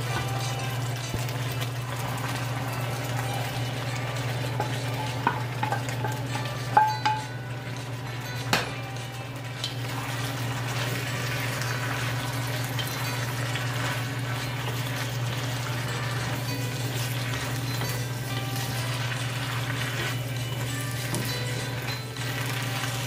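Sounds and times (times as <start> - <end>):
food sizzling in a wok: 0.0 - 23.0
spatula knocking against wok: 4.6 - 7.4, 8.4 - 8.8.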